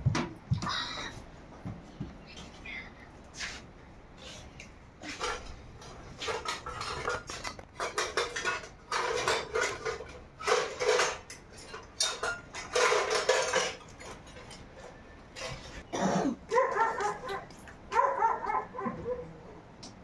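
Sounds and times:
pots and dishes clattering: 0:05.0 - 0:19.2.

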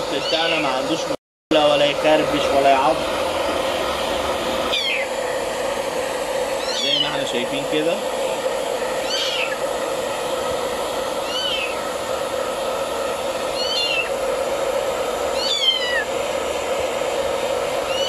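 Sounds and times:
hair dryer blowing: 0:00.0 - 0:18.0
cat meowing: 0:09.0 - 0:09.6, 0:11.2 - 0:11.8, 0:15.4 - 0:16.0.

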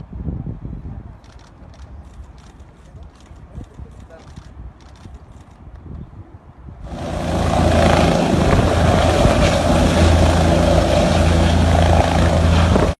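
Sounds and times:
helicopter engine and rotor: 0:06.8 - 0:13.0.

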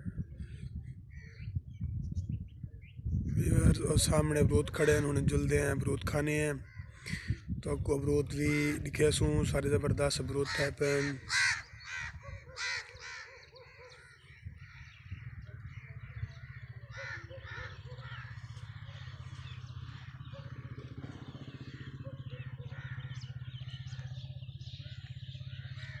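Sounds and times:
steady pulsing low rumble: 0:00.0 - 0:10.4, 0:14.3 - 0:22.2
bird calls: 0:00.0 - 0:26.0
crows cawing: 0:06.6 - 0:07.5, 0:08.4 - 0:09.1, 0:10.0 - 0:24.2, 0:25.6 - 0:26.0.

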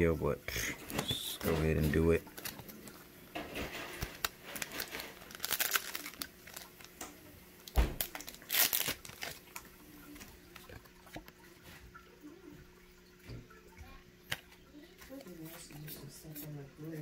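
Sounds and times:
foil wrapper crinkling: 0:00.7 - 0:11.3.

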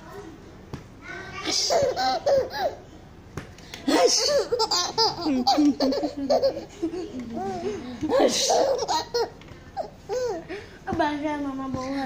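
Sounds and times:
baby laughing: 0:01.4 - 0:02.8, 0:03.9 - 0:10.5.

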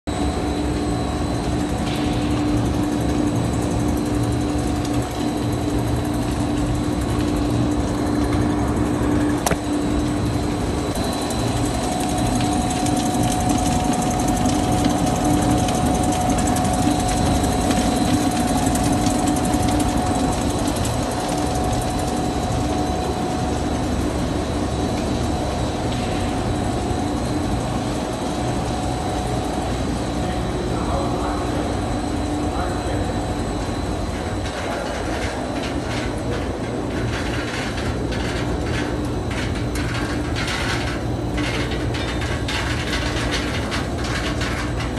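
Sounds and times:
production line machinery hum: 0:00.1 - 0:44.9
higher machine tone: 0:07.7 - 0:34.1.

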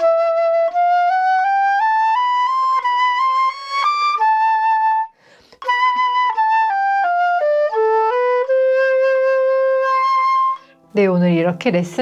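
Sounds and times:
flute playing: 0:00.0 - 0:11.1
flutist breath: 0:05.1 - 0:05.7, 0:10.6 - 0:10.9.

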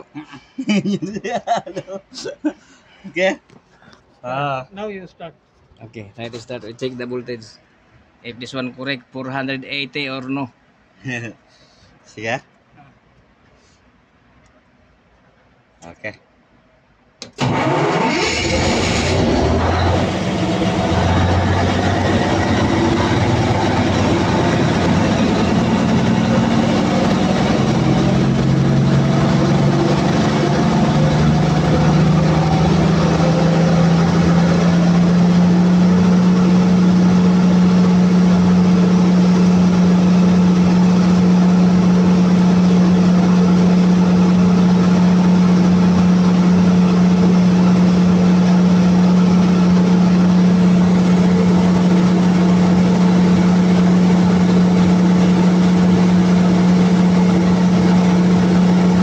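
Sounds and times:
diesel generator engine running: 0:17.3 - 0:59.0.

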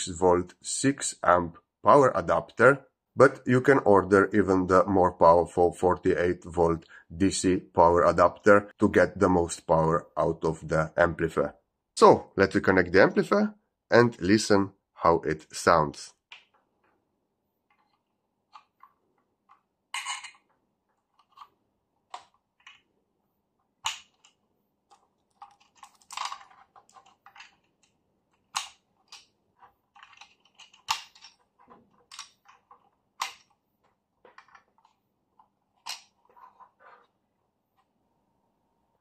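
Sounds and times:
cable handling rustle: 0:23.6 - 0:38.0.

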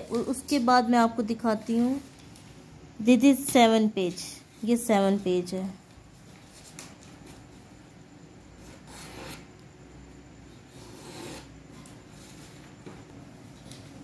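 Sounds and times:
paper rustling: 0:04.1 - 0:07.8.

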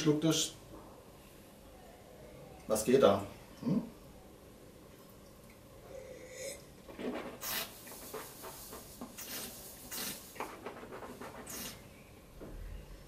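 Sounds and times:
person sipping wine: 0:05.9 - 0:06.6.

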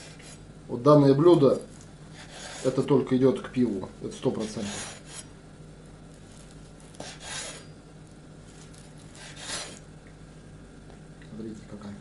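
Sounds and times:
knife slicing on cutting board: 0:06.9 - 0:07.7, 0:09.1 - 0:09.8.

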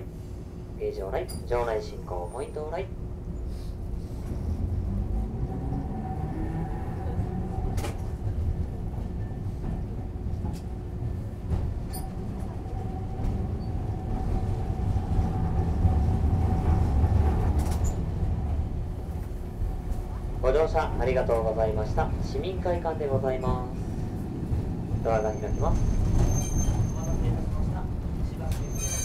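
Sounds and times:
streetcar motor hum: 0:00.0 - 0:29.0
streetcar wheels rumbling on rails: 0:00.0 - 0:29.0.

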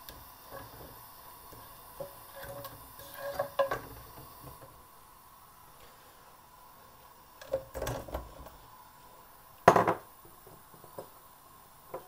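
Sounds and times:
clattering knocks in pan: 0:02.0 - 0:04.7, 0:09.7 - 0:10.1.

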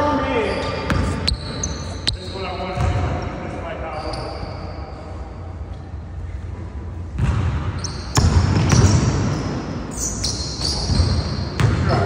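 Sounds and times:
basketball bouncing on gym floor: 0:00.8 - 0:01.5, 0:02.7 - 0:03.1, 0:07.2 - 0:09.5, 0:10.6 - 0:12.0.

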